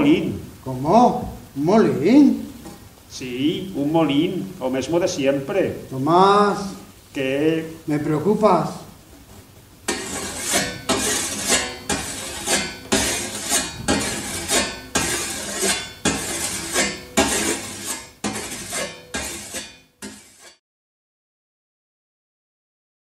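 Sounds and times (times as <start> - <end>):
whetstone scraping scythe blade: 9.9 - 20.6.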